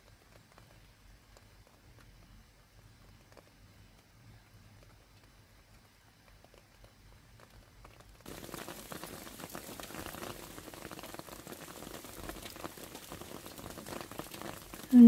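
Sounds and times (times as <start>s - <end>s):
rain dripping into puddle: 0.0s - 15.0s
hail pattering on leaves: 4.8s - 15.0s.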